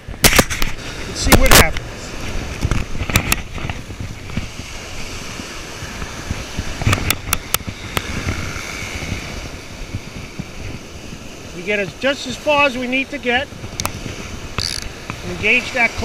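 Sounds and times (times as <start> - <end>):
surf washing on beach: 0.0 - 16.0
wind on microphone: 0.0 - 16.0
fishing reel clicks: 14.6 - 14.9.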